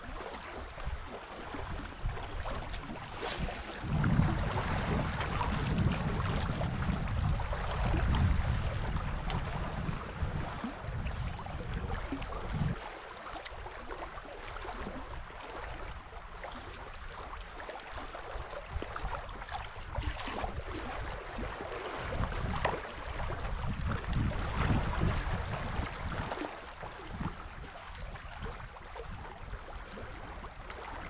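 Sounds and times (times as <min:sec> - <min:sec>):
small waves lapping: 0:00.0 - 0:31.0
wind rumble on microphone: 0:00.0 - 0:31.0.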